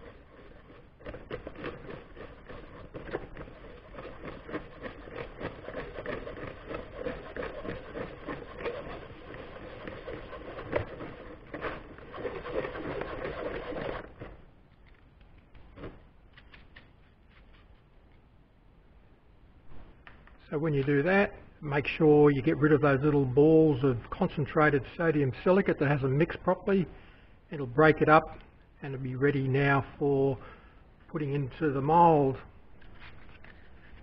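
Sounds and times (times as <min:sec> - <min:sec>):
sand scratching through wire sieve: 0:00.0 - 0:14.4.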